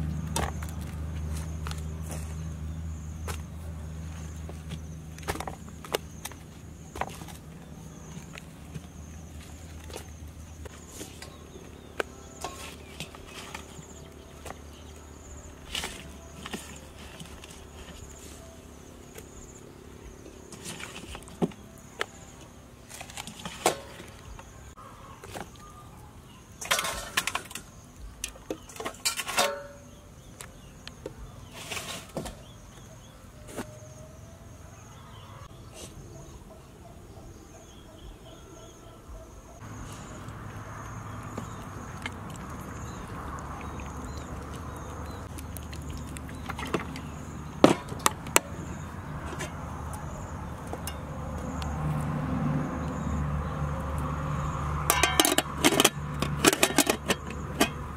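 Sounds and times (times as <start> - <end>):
low outdoor hum: 0.0 - 57.9
insects chirring: 39.6 - 55.5.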